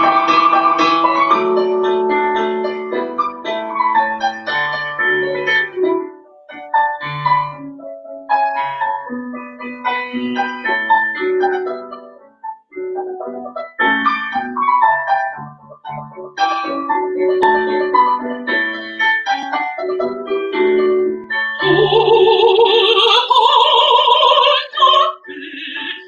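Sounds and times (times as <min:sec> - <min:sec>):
piano notes: 0:00.0 - 0:26.0
woman singing operatically: 0:21.6 - 0:26.0.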